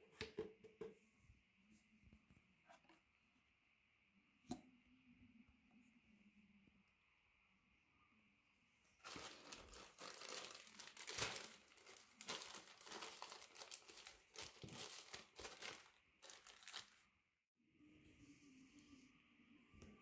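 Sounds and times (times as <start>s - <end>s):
plastic packaging crinkling: 9.0s - 17.1s.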